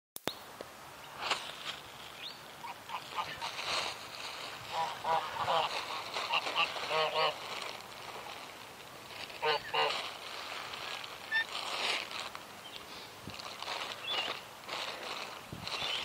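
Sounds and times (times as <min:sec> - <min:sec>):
geese honking: 0:02.6 - 0:03.9, 0:04.5 - 0:07.6, 0:09.3 - 0:10.2, 0:11.2 - 0:11.5.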